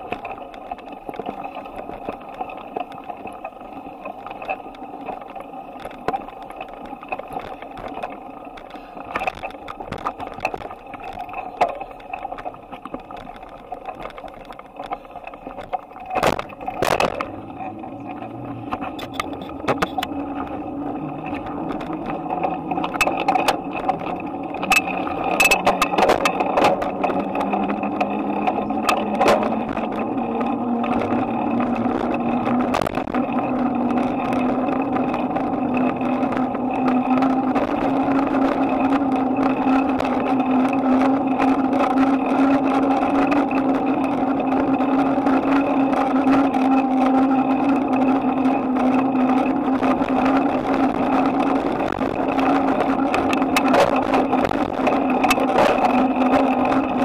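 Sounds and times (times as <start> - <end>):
bicycle rolling on pavement: 0.0 - 57.0
sharp clicks and knocks: 0.0 - 57.0.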